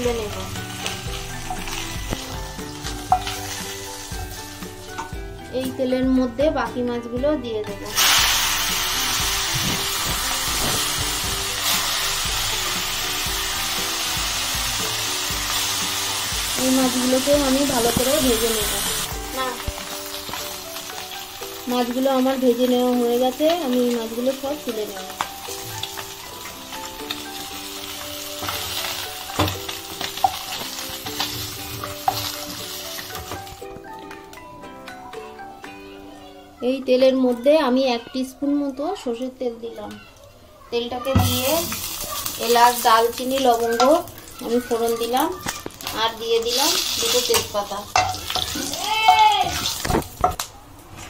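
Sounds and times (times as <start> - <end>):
fish frying in oil sizzling: 0.0 - 5.2, 7.9 - 33.7, 41.1 - 50.5
soft background music: 0.0 - 51.0.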